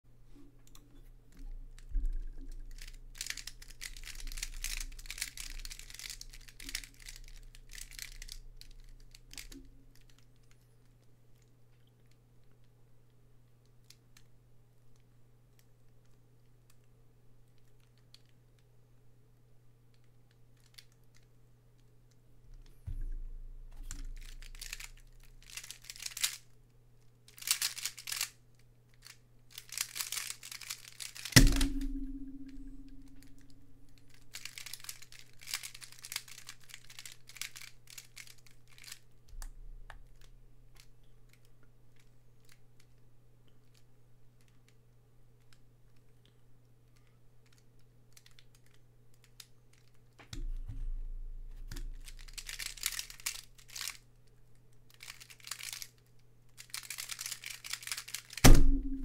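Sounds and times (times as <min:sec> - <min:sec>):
steady low hum: 0:00.1 - 0:10.0, 0:22.4 - 0:25.6, 0:31.3 - 0:34.4, 0:58.5 - 0:59.0
faint puzzle clicks: 0:00.3 - 0:18.7, 0:19.9 - 0:59.0
plastic puzzle clacking and scraping: 0:00.7 - 0:12.7, 0:20.0 - 0:26.6, 0:27.3 - 0:43.0, 0:46.9 - 0:59.0
hand slapping timer pads: 0:31.1 - 0:33.4.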